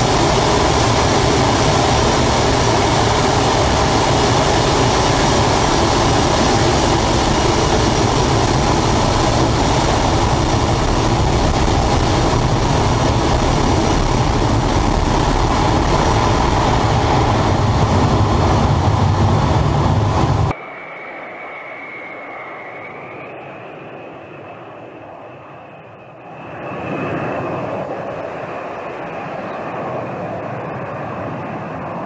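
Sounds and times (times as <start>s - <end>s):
rushing air roar: 0.0s - 25.2s
aircraft engine noise: 0.0s - 32.0s.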